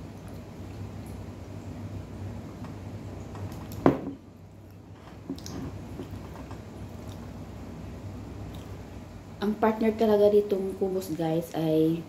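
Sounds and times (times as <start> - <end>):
low steady hum: 0.0 - 12.0
glass knocking on wooden table: 3.8 - 4.2.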